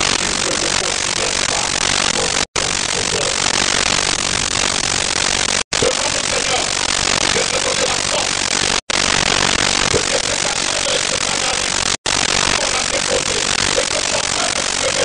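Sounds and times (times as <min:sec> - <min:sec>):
loud steady static hiss: 0:00.0 - 0:15.0.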